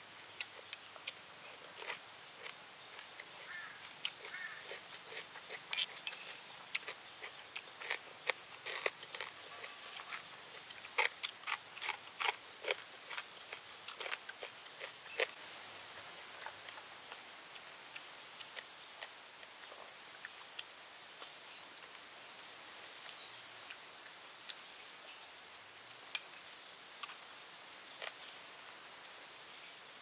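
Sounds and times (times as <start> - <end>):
steady hiss: 0.0 - 30.0
crunchy chewing: 0.3 - 20.7.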